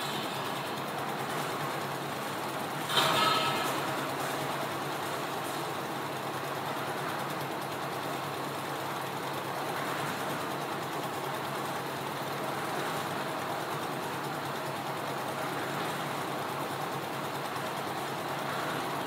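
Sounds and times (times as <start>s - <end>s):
diesel engine running steadily: 0.0s - 19.0s.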